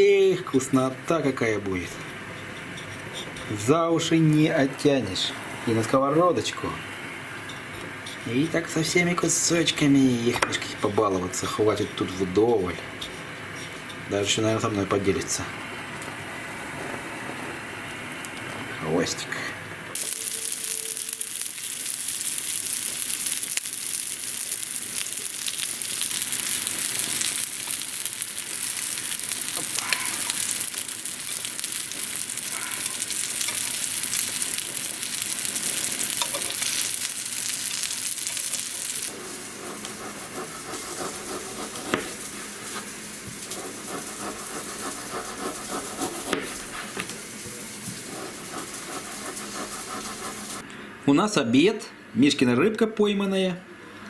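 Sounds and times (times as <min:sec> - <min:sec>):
fish sizzling in oil: 0:20.0 - 0:39.6.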